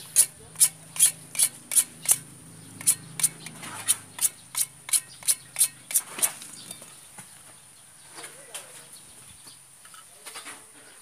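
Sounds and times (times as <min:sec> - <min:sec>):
hacksaw cutting plastic pipe: 0:00.0 - 0:02.2, 0:02.8 - 0:06.4.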